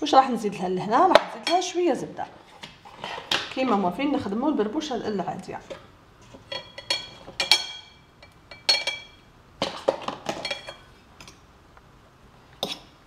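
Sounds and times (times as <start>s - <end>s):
cutlery clinking against a bowl: 6.3s - 11.4s.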